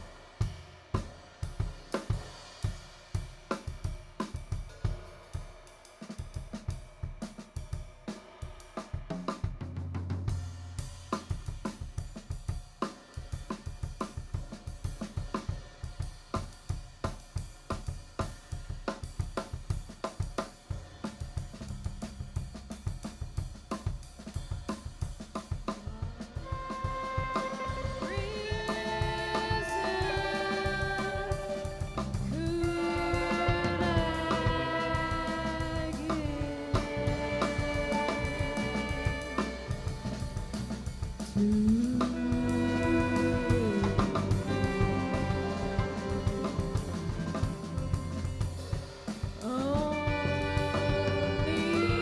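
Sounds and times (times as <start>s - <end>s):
bass: 0.0s - 5.4s, 9.1s - 52.0s
jazz drum kit groove: 0.0s - 52.0s
held melody notes: 27.1s - 49.2s.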